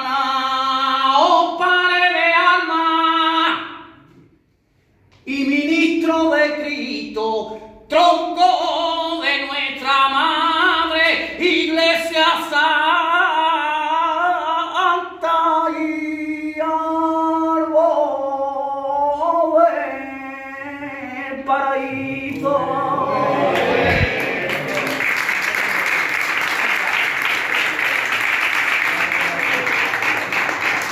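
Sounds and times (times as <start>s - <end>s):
man singing unaccompanied: 0.0s - 3.9s, 5.2s - 22.8s.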